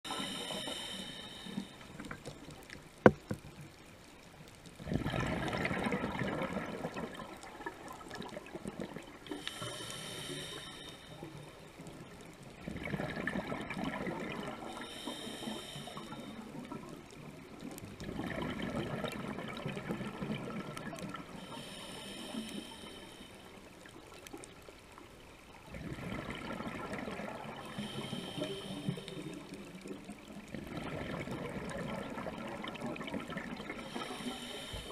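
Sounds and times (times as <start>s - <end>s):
whistling inhale through regulator: 0.1s - 1.8s, 9.4s - 11.2s, 14.7s - 16.4s, 27.7s - 29.4s, 33.9s - 34.9s
exhaled bubbles rushing: 4.8s - 9.2s, 12.6s - 14.7s, 18.0s - 21.3s, 25.7s - 27.8s, 30.5s - 34.0s.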